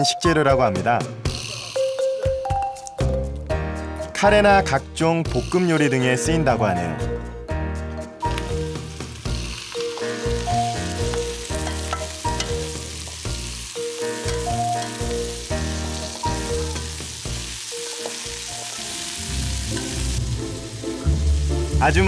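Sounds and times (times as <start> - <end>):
shrimp sizzling in hot oil: 8.2 - 21.8.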